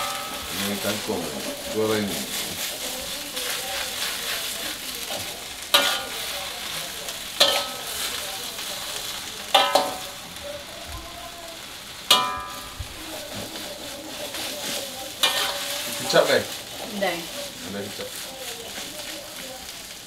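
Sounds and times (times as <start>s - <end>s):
metal spatula clanging on wok: 0.0s - 0.5s, 5.1s - 6.3s, 7.4s - 8.2s, 9.4s - 10.2s, 12.1s - 12.8s, 15.1s - 16.2s
vegetables sizzling in a wok: 0.0s - 20.0s.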